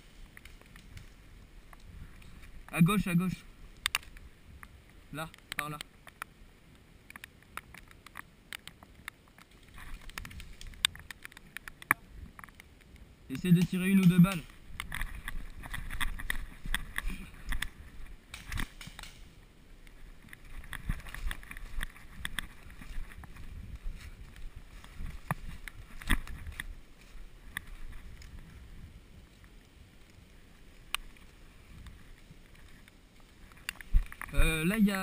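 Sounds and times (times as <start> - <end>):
brush rustling: 0.0 - 35.0
sharp clicks: 3.7 - 6.3, 7.0 - 17.7
camera jostling bumps: 9.4 - 12.6, 14.3 - 19.3, 20.2 - 26.8
footsteps on forest floor: 19.9 - 28.6.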